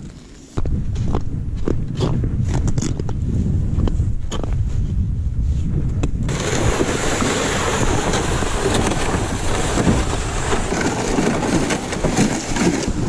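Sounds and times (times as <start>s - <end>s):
wind buffeting microphone: 0.6s - 13.0s
sled scraping across ice: 6.3s - 13.0s.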